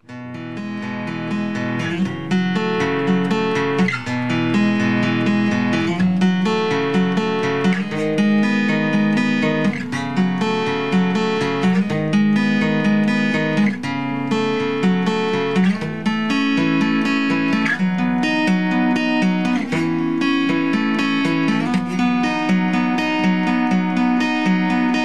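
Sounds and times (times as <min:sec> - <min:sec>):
acoustic guitar strumming chords: 0:00.0 - 0:25.0.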